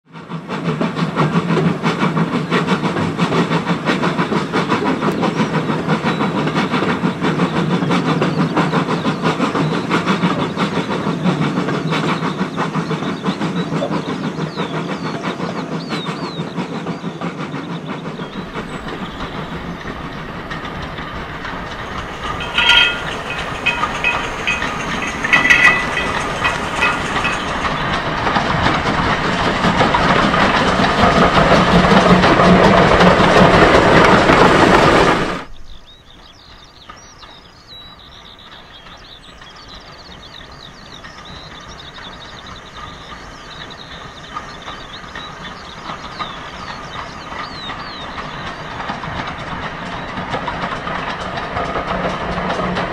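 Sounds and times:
train wheels clattering: 0.1s - 52.9s
shrill squeals: 18.3s - 28.0s.

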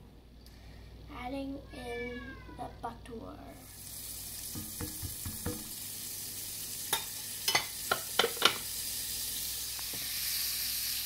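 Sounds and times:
butter sizzling in a skillet: 3.6s - 11.0s
spatula knocking against pan: 4.5s - 5.7s.

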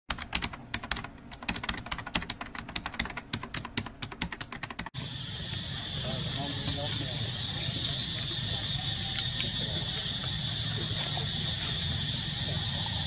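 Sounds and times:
steady high hiss: 5.0s - 13.0s.

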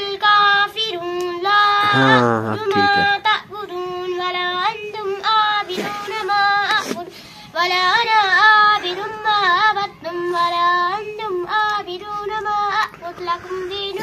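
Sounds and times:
girl chanting melodically: 0.0s - 5.7s.

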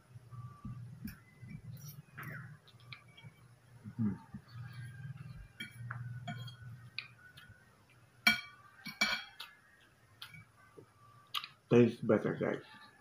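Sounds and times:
forks clinking on a plate: 5.6s - 6.7s, 8.2s - 9.5s.

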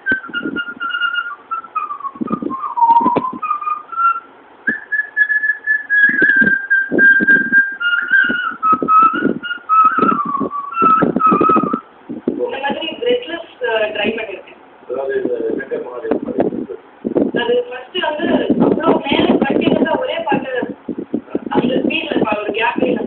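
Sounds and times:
woman whistling a melody: 0.0s - 11.9s.

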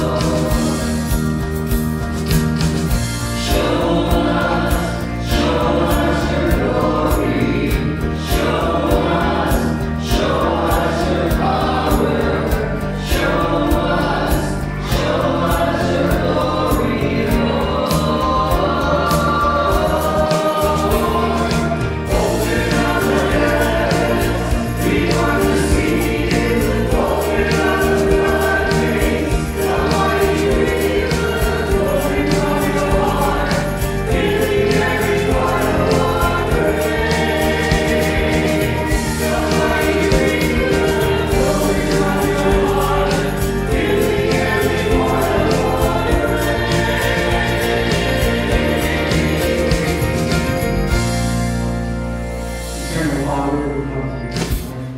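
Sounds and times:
bass: 0.0s - 54.9s
keyboard backing track: 0.0s - 54.9s
vocal group singing in harmony: 0.0s - 54.9s
drum beat: 19.8s - 50.6s.

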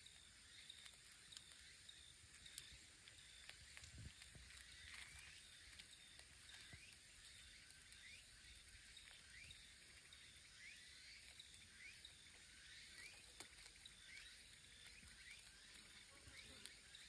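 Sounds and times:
faint outdoor ambience: 0.0s - 17.0s.

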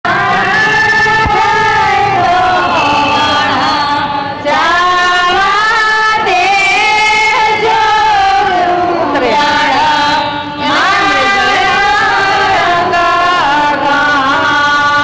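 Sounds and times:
women singing in chorus: 0.1s - 15.0s.

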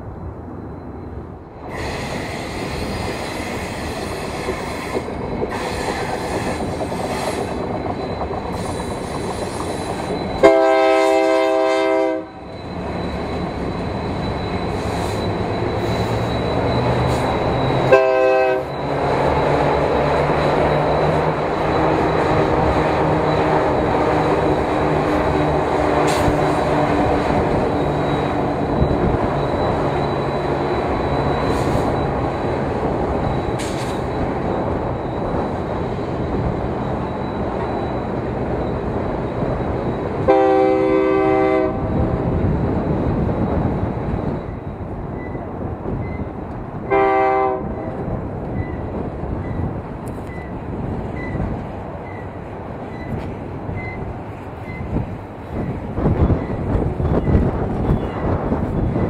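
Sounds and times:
train rumbling on rails: 0.0s - 59.0s
locomotive horn blast: 10.4s - 12.4s, 17.8s - 18.8s, 40.2s - 41.9s, 46.9s - 47.9s.

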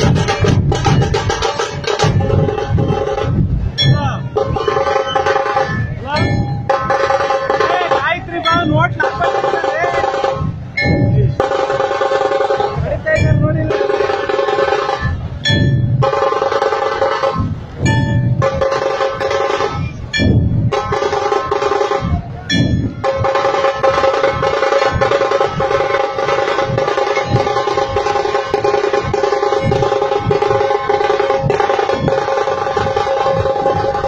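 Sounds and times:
dhol drums pounding: 0.0s - 34.0s
steady held tone: 0.2s - 34.0s.

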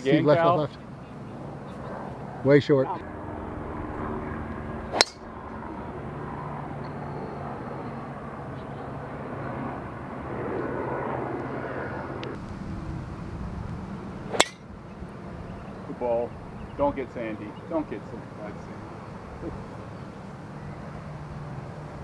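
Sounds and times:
low engine drone: 0.0s - 22.0s
golf driver striking ball: 4.9s - 5.3s, 14.3s - 14.8s.

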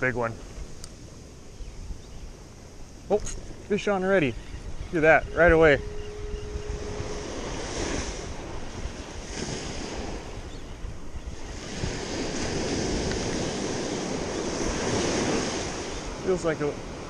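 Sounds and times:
wind buffeting microphone: 0.0s - 17.0s
ocean surf breaking: 2.6s - 17.0s.

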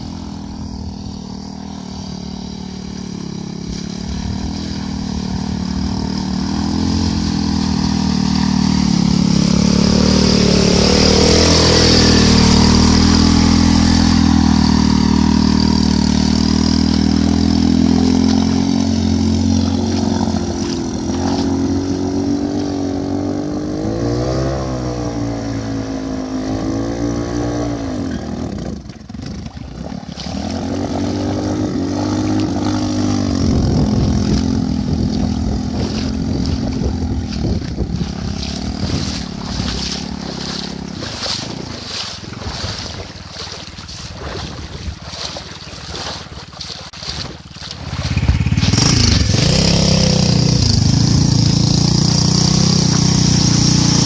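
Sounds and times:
small motorcycle engine under load: 0.0s - 54.0s
water splashing off wheels: 0.0s - 54.0s.

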